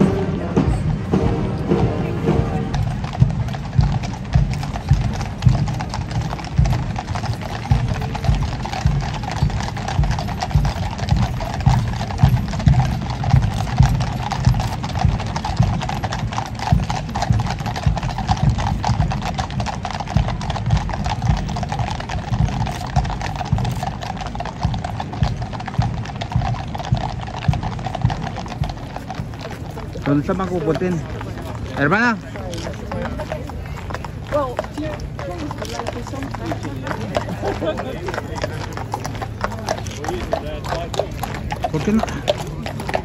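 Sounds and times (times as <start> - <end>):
horses' hooves clip-clopping on road: 0.0 - 43.0.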